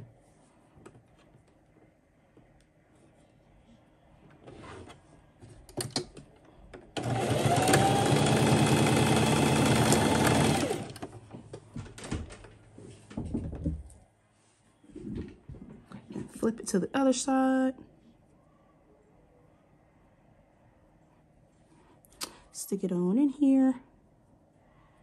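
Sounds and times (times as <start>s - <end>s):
sewing machine running: 7.0s - 11.1s.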